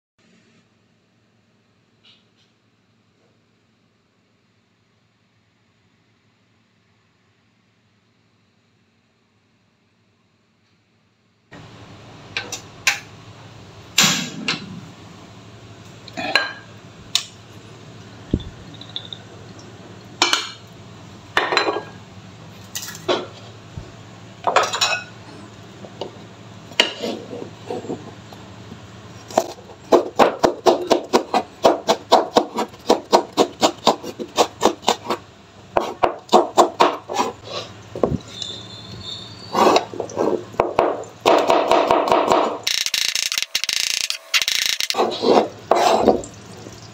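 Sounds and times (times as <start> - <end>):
knife chopping on cutting board: 29.4 - 35.2, 35.8 - 37.3.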